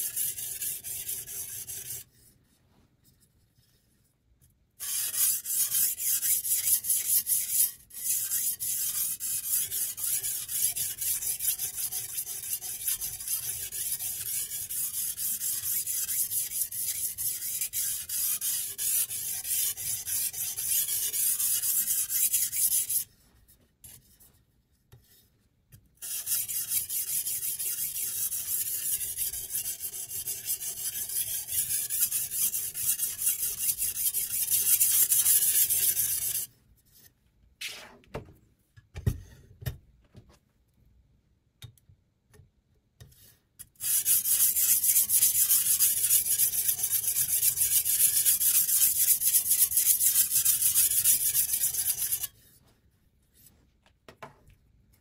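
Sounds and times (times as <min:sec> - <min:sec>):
sharpening stone scraping knife: 0:00.0 - 0:02.1, 0:04.8 - 0:23.1, 0:26.0 - 0:36.5, 0:43.7 - 0:52.4.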